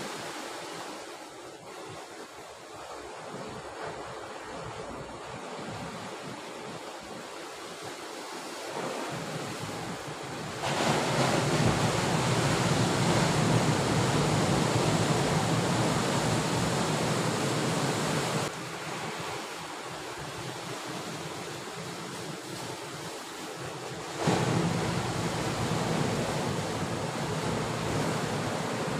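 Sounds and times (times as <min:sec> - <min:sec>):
waves breaking on rocks: 0:07.9 - 0:28.9
wind buffeting microphone: 0:08.8 - 0:18.5.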